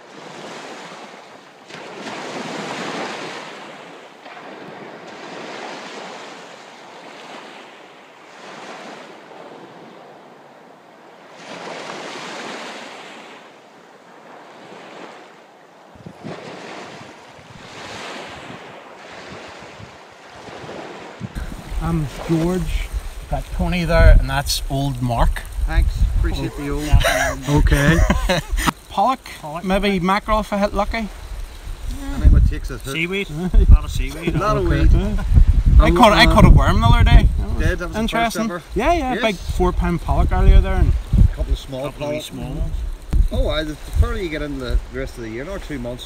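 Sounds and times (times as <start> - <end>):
sea waves washing on shore: 0.0 - 46.0
wind gusting on microphone: 15.8 - 46.0.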